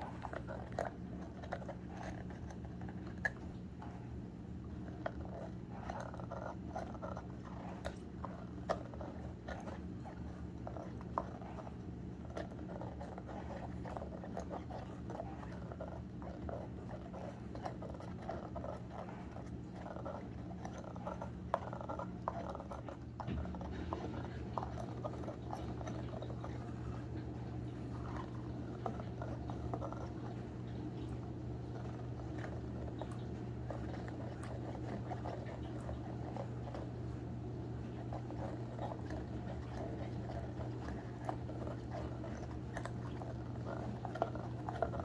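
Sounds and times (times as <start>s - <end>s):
dog gnawing rubber toy: 0.0s - 45.0s
steady low hum: 0.0s - 45.0s.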